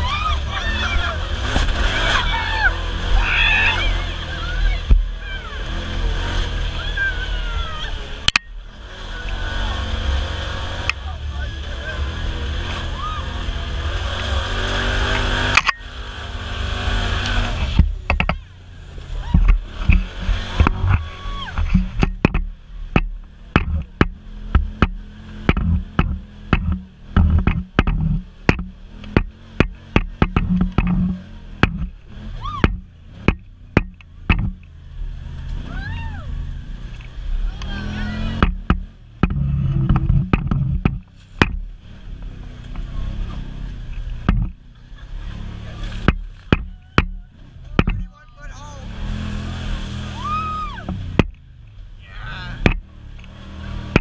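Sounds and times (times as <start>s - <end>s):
utility vehicle engine running: 0.0s - 54.0s
vehicle knocks and rattles: 17.6s - 18.6s, 19.2s - 34.8s, 38.2s - 48.4s, 50.8s - 51.9s, 52.5s - 54.0s.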